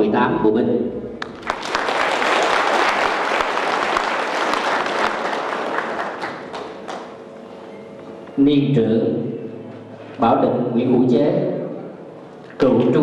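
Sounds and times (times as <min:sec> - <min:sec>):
audience applauding: 0:01.2 - 0:07.3.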